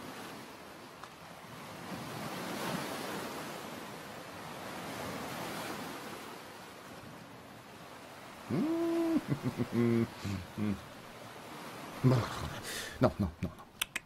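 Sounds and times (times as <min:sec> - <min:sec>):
surf washing onto sand: 0:08.0 - 0:13.3.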